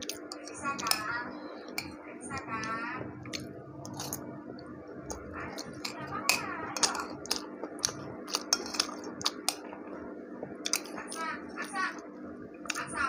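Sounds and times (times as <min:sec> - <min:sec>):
metal spoon clinking on a plate: 0:08.3 - 0:09.6.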